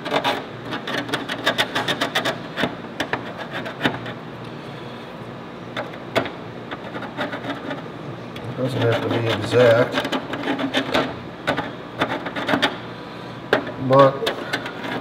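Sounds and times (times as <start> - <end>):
pencil scratching on plastic: 0.0 - 2.4, 3.1 - 4.2, 6.7 - 7.8, 8.5 - 12.8, 14.2 - 15.0.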